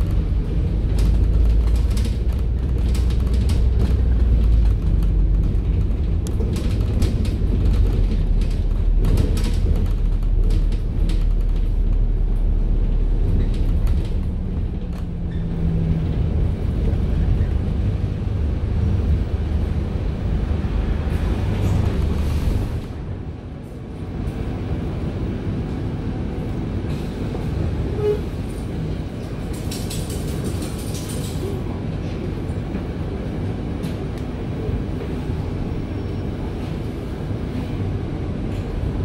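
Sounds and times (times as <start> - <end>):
knocks and rattles: 0.0 - 12.1
bus drivetrain and road rumble: 0.0 - 39.0.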